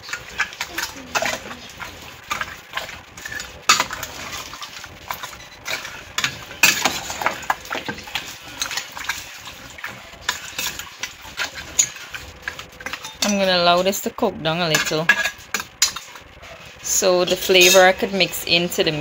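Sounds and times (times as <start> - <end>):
metal spoon scraping pot: 0.0 - 14.0, 14.6 - 19.0.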